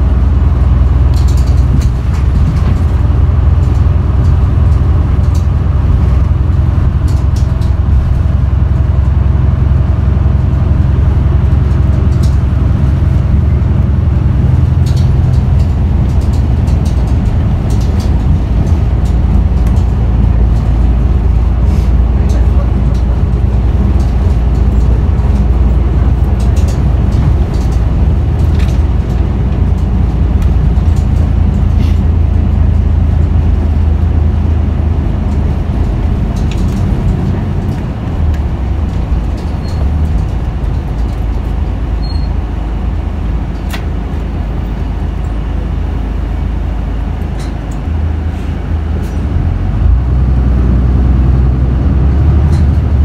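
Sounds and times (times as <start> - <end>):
bus diesel engine drone: 0.0 - 53.0
light clicks and rattles: 0.5 - 9.2, 11.4 - 34.1, 35.2 - 42.3.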